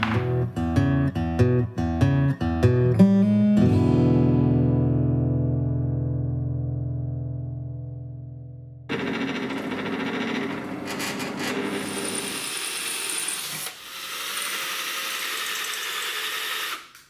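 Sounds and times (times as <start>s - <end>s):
drill press drilling: 8.9s - 17.0s
power drill boring through steel: 8.9s - 17.0s.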